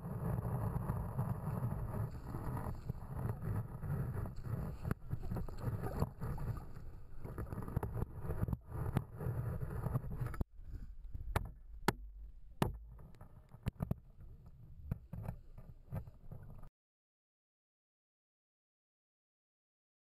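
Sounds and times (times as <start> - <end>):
muffled underwater water sloshing: 1.2 - 13.7.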